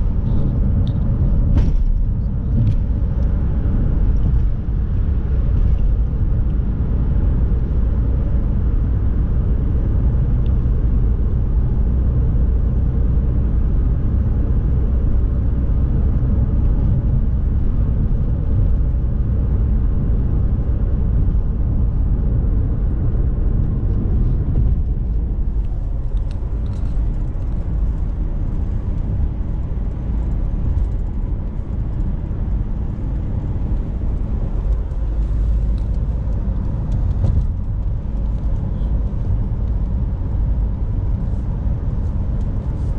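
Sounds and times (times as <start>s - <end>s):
car cabin road noise: 0.0s - 42.9s.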